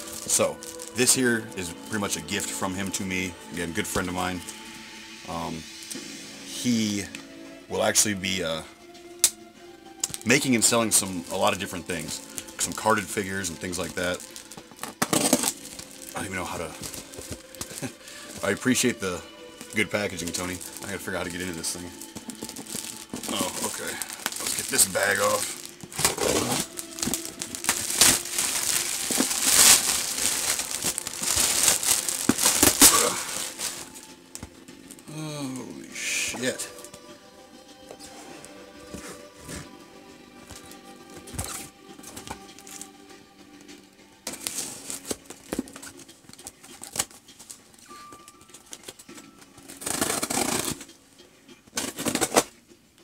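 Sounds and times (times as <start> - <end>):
packaging ripping: 0.0 - 1.2, 10.0 - 18.8, 19.6 - 34.1, 49.7 - 50.9
packaging clicks and rustles: 0.0 - 1.3, 10.0 - 19.0, 19.6 - 34.5, 40.5 - 42.9, 44.3 - 50.9, 51.7 - 52.6
plastic bag crinkling and tearing: 0.0 - 3.0, 10.0 - 19.0, 19.6 - 34.1, 42.6 - 42.9, 49.7 - 50.8.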